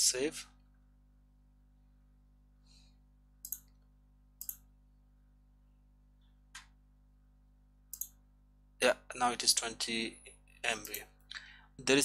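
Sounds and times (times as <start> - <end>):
computer mouse clicks: 3.4 - 3.8, 4.4 - 4.6, 7.9 - 8.2, 10.8 - 11.1.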